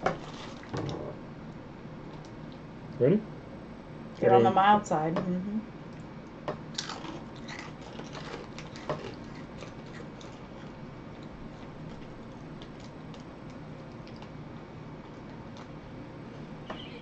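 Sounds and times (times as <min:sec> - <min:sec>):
low room hum: 0:00.0 - 0:17.0
crunching of crackers being chewed: 0:06.7 - 0:14.4
snack bag crinkling: 0:06.8 - 0:14.4.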